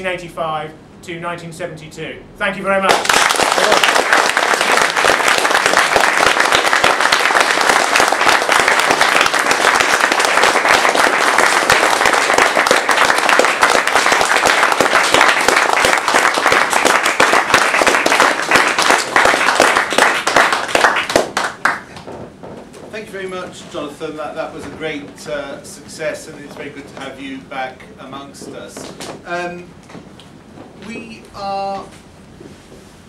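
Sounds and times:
audience applauding: 2.9s - 22.1s.

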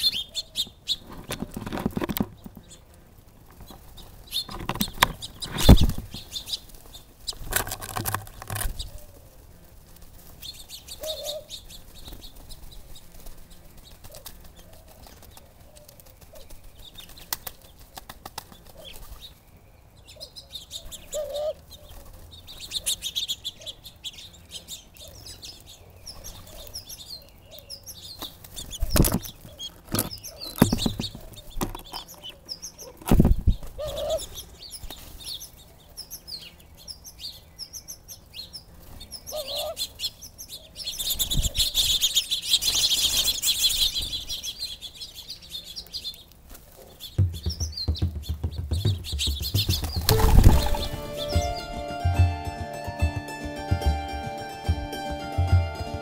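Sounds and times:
small birds chirping: 0.0s - 52.7s
doves flapping wings: 3.3s - 8.6s, 9.7s - 19.3s, 47.2s - 51.8s
wingbeat thumps: 47.2s - 56.0s.

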